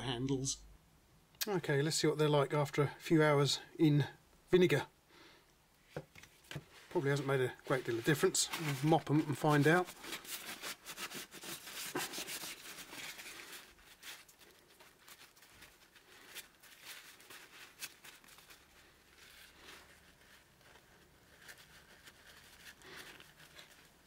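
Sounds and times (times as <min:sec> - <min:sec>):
paper towel rubbing metal: 0:06.8 - 0:24.0.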